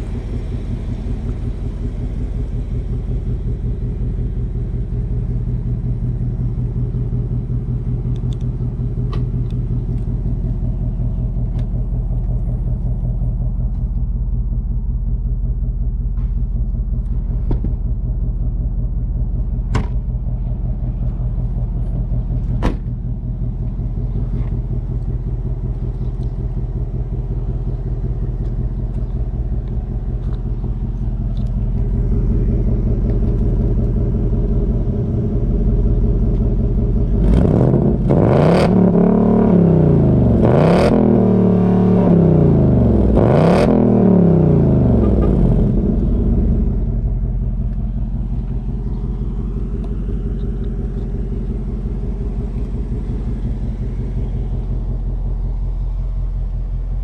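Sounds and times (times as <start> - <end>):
car engine idling and revving: 0.0 - 57.0.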